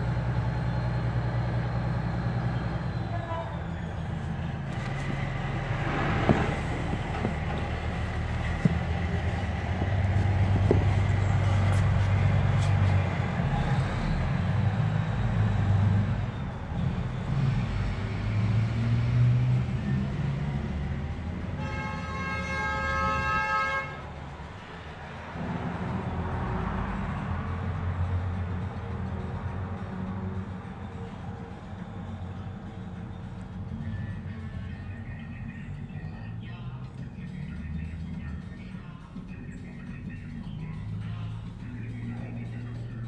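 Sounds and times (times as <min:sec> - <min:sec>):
vehicle engine rumbling: 0:00.0 - 0:43.0
vehicle horn: 0:02.9 - 0:03.9, 0:21.4 - 0:24.2.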